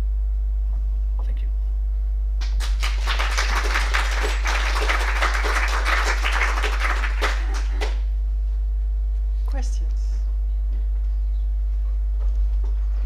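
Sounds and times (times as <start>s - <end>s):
low hum: 0.0s - 13.0s
audience applauding: 2.4s - 8.1s.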